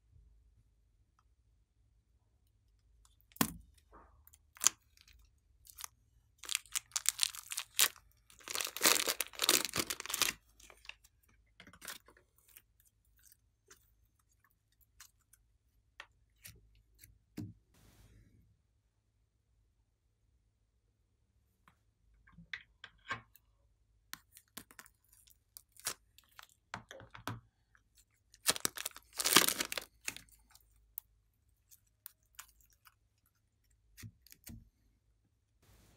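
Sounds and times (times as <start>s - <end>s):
plastic bag crinkling and tearing: 5.7s - 10.9s, 28.4s - 30.3s.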